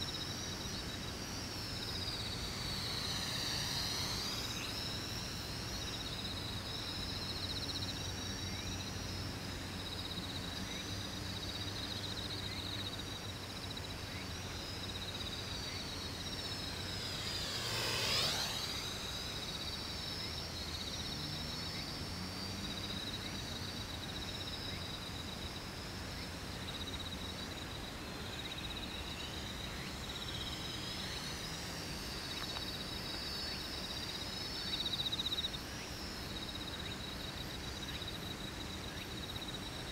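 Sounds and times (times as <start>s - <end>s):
high insect trill: 0.0s - 39.9s
drone propellers whining: 0.2s - 24.1s.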